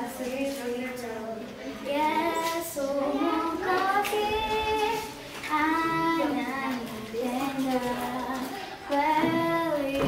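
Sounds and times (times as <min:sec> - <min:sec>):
child singing: 0:00.0 - 0:10.0.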